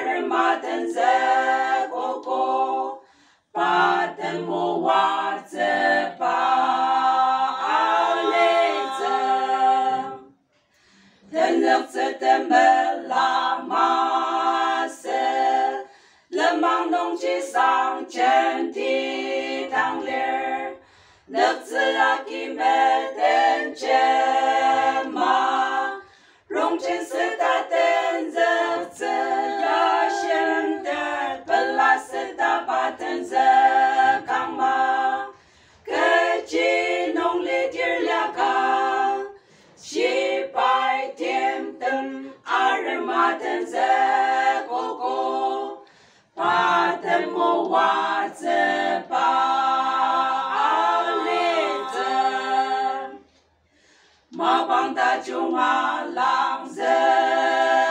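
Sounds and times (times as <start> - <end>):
women singing unaccompanied: 0.0 - 10.3, 11.3 - 53.3, 54.3 - 57.9.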